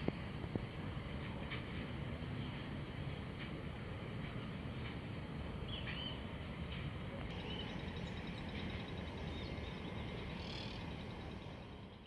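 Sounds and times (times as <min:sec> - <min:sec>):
small birds chirping: 0:07.3 - 0:11.6.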